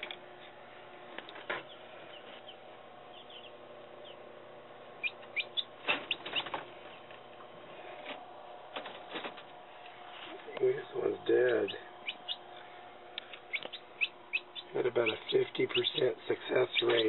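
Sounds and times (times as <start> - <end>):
incubator fan hum: 0.0 - 17.0
chicks peeping: 1.4 - 7.6, 10.4 - 17.0
scuffling and wing-flapping on mesh: 5.8 - 6.9, 8.7 - 9.6.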